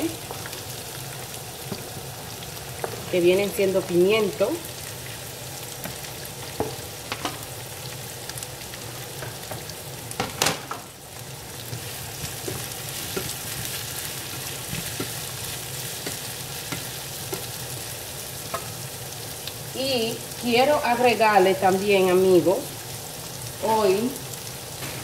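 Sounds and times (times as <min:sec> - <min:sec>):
vegetables sizzling in oil: 0:00.0 - 0:25.0
spoon scraping a pan: 0:11.6 - 0:18.8.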